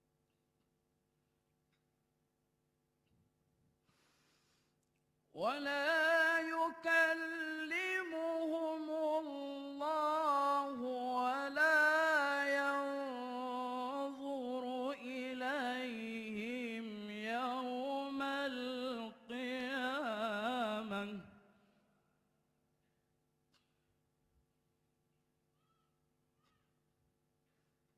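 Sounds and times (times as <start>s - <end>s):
breath: 3.8s - 4.8s
man reciting melodically: 5.4s - 21.5s.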